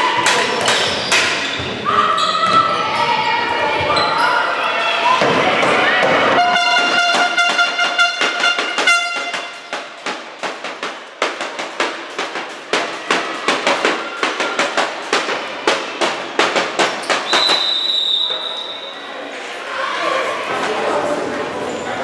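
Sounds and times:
steady horn-like tone: 0:06.4 - 0:09.6
sharp echoing knocks: 0:07.0 - 0:17.5.

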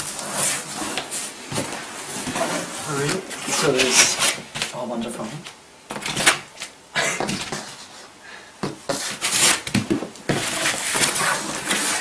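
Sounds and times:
foam scraping against cardboard box: 0:00.0 - 0:01.3, 0:01.9 - 0:04.4, 0:08.9 - 0:09.7, 0:10.3 - 0:12.0.

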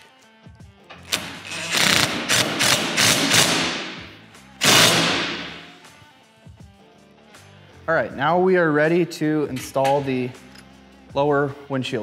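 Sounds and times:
impact driver hammering: 0:01.0 - 0:05.7.

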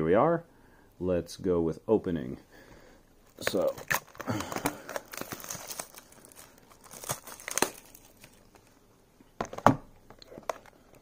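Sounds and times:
shrink wrap crinkling and tearing: 0:03.2 - 0:08.8.

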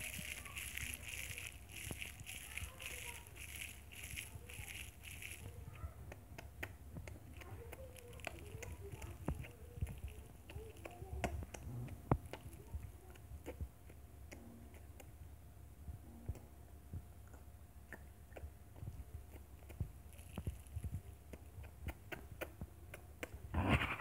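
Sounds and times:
foil wrapper crinkling: 0:00.0 - 0:05.8, 0:07.3 - 0:11.3, 0:20.1 - 0:21.0
chewing and lip smacks: 0:00.0 - 0:15.2, 0:17.2 - 0:23.4
low humming murmur: 0:00.0 - 0:23.6.

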